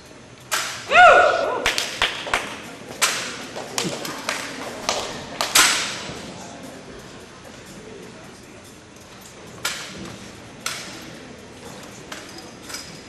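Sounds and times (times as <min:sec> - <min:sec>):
person whooping: 0:00.9 - 0:01.8.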